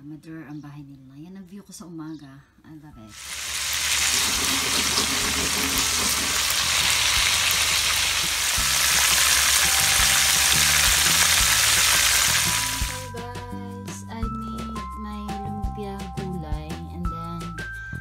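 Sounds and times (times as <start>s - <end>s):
sausages sizzling in oil: 3.1s - 13.1s.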